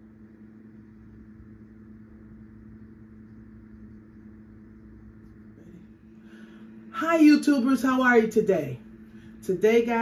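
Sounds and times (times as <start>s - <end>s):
steady mechanical hum: 0.0s - 10.0s.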